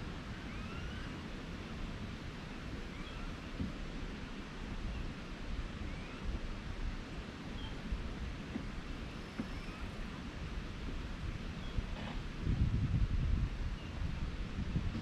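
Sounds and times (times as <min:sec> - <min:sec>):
faint short chirping calls: 0:00.4 - 0:01.2, 0:02.8 - 0:03.6, 0:05.8 - 0:06.4, 0:07.5 - 0:07.9, 0:08.9 - 0:10.0.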